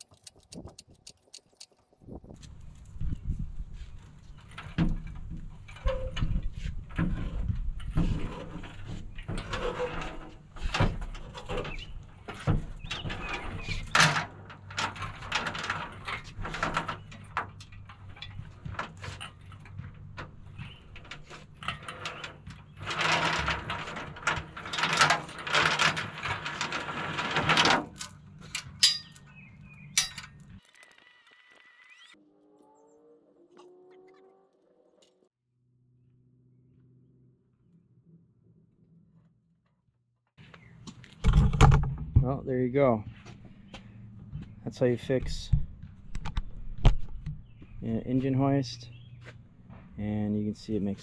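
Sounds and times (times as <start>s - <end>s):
metal and chain clanking: 21.0s - 29.3s, 29.9s - 30.4s.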